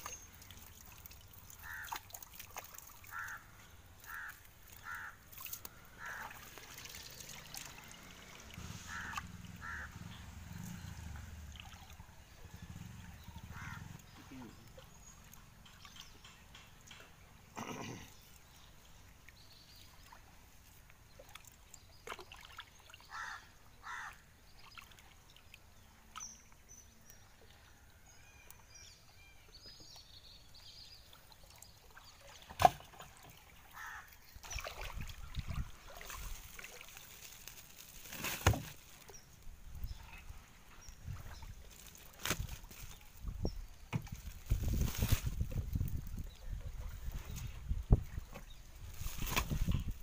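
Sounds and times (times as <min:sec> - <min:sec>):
shallow water sloshing and trickling: 0:00.0 - 0:50.0
knocks of handling a net: 0:35.9 - 0:39.1, 0:41.7 - 0:43.2, 0:47.2 - 0:50.0.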